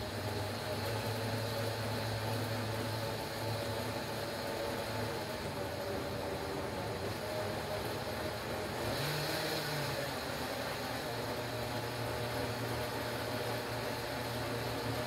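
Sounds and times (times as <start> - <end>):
blender running: 5.0 - 15.0.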